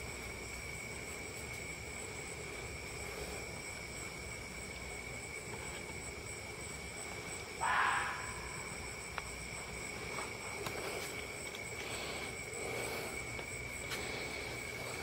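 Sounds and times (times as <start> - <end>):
night insects trilling: 0.0 - 15.0
fox barking: 7.6 - 8.8.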